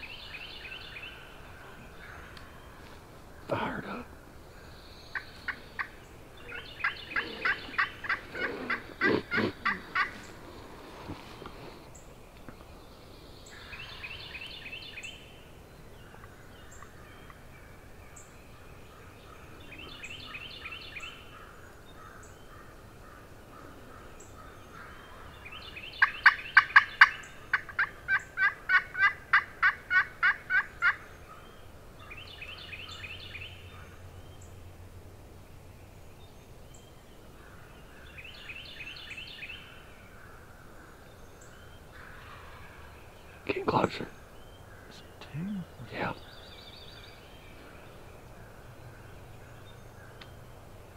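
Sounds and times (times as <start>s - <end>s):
distant turkey gobbling: 5.1s - 10.3s, 26.0s - 31.0s
turkey yelps: 6.8s - 10.1s.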